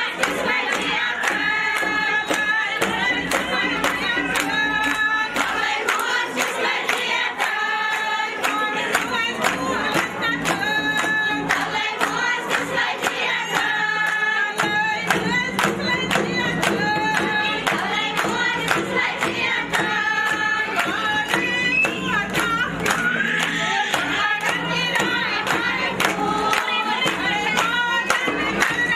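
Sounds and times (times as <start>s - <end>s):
group of women singing: 0.0s - 28.9s
hand-clapping: 0.0s - 28.9s.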